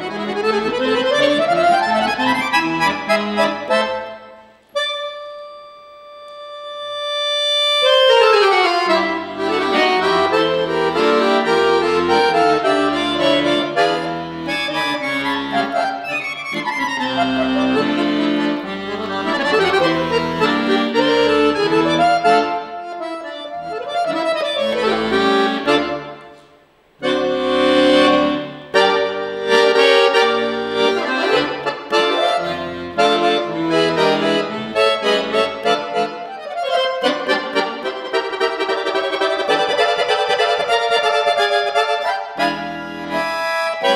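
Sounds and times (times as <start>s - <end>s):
piano accordion playing: 0.0s - 43.9s.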